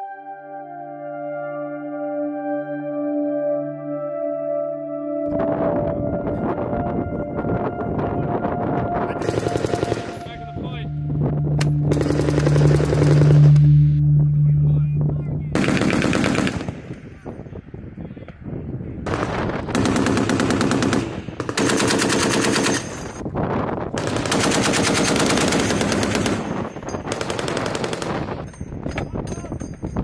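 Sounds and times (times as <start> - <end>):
heavy machine gun firing bursts: 9.2 - 10.2, 11.9 - 13.4, 15.6 - 16.8, 19.1 - 23.2, 24.0 - 28.3
steady low hum: 10.4 - 17.1.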